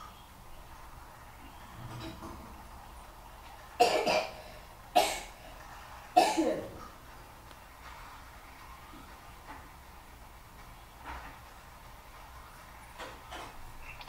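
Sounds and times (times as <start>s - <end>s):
person coughing: 6.2s - 6.7s.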